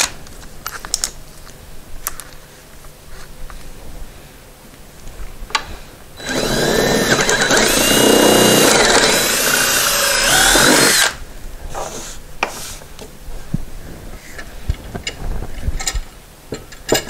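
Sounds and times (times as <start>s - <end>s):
cordless drill boring into wood: 6.2s - 11.2s.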